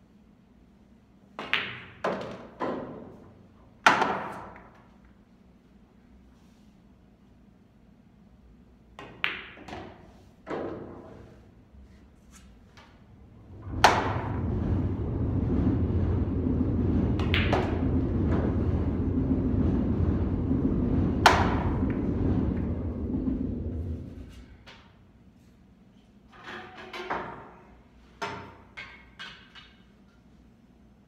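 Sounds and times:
steady low rumble: 0:13.0 - 0:25.2
pool balls clacking: 0:13.6 - 0:24.0
cue tip striking ball: 0:13.8 - 0:14.3, 0:17.2 - 0:18.4, 0:21.2 - 0:22.7.

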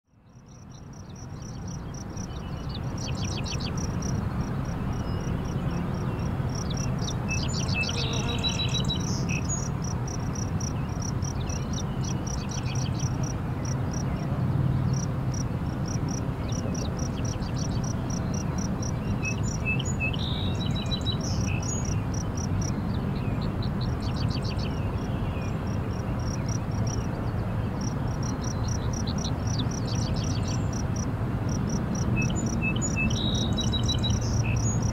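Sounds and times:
insect chirping: 0:00.3 - 0:14.1, 0:14.9 - 0:22.8, 0:27.8 - 0:30.8, 0:31.5 - 0:34.9
bird calls: 0:01.9 - 0:09.7.

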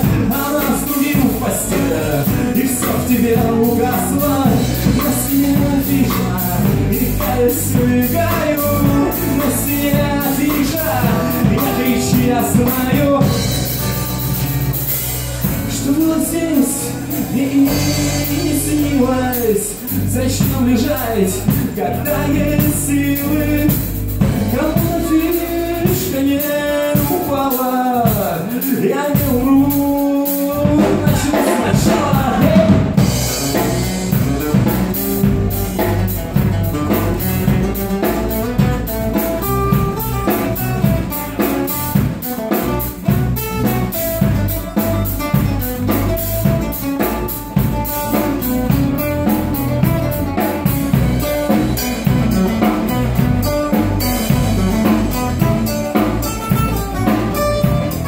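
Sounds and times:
person singing: 0:00.0 - 0:14.2, 0:14.8 - 0:36.2
acoustic guitars: 0:00.0 - 0:58.0
drum kit: 0:00.0 - 0:58.0.

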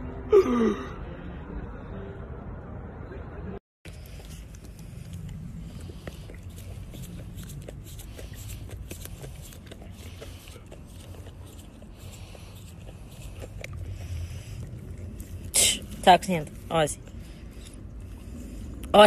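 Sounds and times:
low steady rumble: 0:01.0 - 0:19.0
dog licking and biting: 0:03.9 - 0:18.9.

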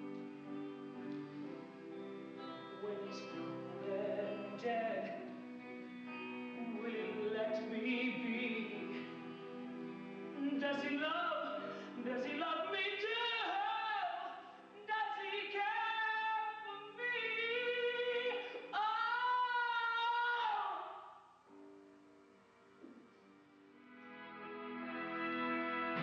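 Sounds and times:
instrumental accompaniment: 0:21.6 - 0:26.0.

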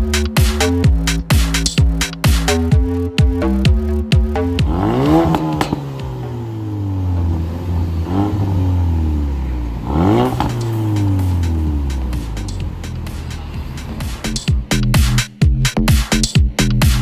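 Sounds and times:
car engine revving: 0:00.0 - 0:17.0
exhaust pops: 0:00.5 - 0:06.5, 0:09.7 - 0:17.0.

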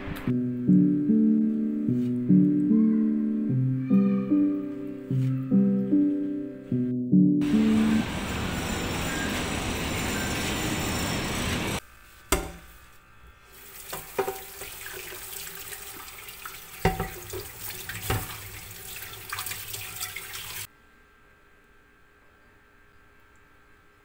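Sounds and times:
sponge scrubbing pan: 0:13.6 - 0:20.6
tap water running onto pan: 0:13.6 - 0:20.7
pan knocking against sink: 0:13.9 - 0:14.8, 0:16.8 - 0:18.5.

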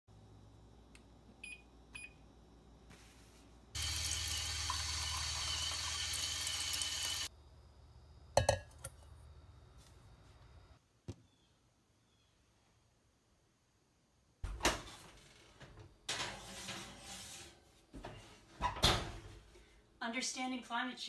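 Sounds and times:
faucet running into plastic cup: 0:03.8 - 0:07.3
metal bowl clunk on scale: 0:08.4 - 0:08.9.

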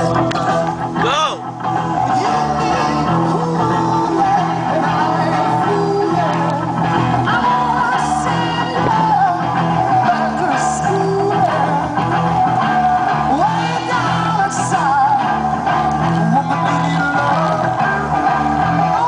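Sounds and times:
guitar: 0:00.0 - 0:19.0
person singing: 0:00.0 - 0:19.0
rock music: 0:00.0 - 0:19.0.

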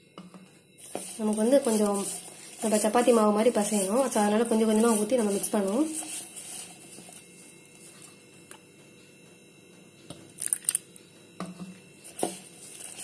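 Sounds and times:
flour rustling through fingers: 0:00.8 - 0:08.0
crackling scrapes in steel bowl: 0:00.8 - 0:08.1, 0:12.0 - 0:13.0.

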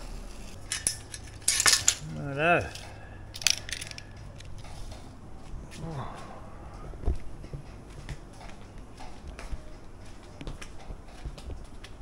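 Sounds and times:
metal tools clattering on tiles: 0:00.6 - 0:02.1, 0:02.7 - 0:04.2
man grunting: 0:02.0 - 0:02.7, 0:05.8 - 0:06.4.

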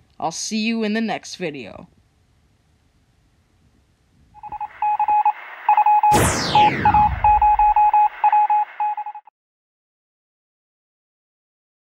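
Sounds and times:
electronic beeps: 0:04.4 - 0:09.3
whoosh falling in pitch: 0:05.7 - 0:08.0.

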